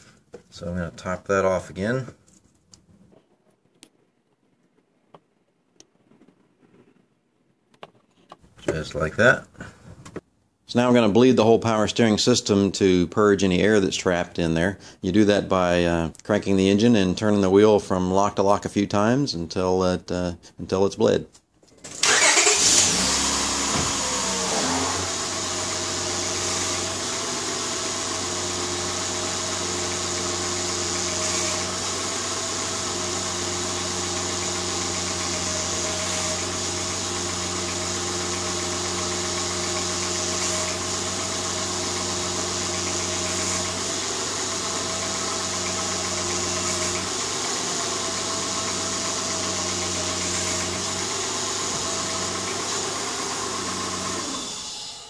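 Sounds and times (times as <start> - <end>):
car engine idling: 22.0 - 54.9.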